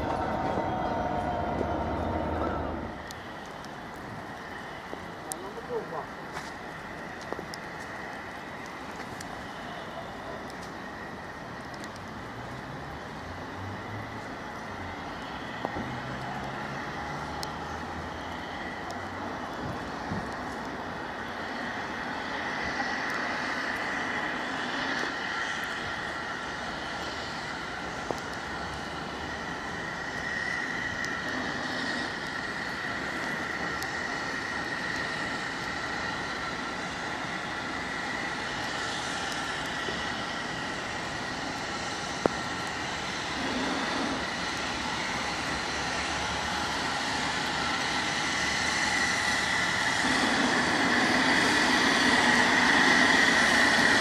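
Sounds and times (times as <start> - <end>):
thin high whine: 0.0 - 3.0
passing train: 0.0 - 54.0.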